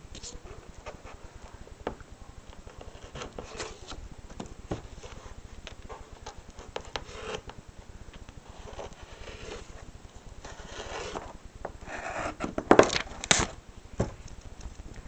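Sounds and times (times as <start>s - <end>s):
paper rustling and scraping: 2.7s - 4.0s, 4.7s - 7.5s, 8.4s - 13.6s.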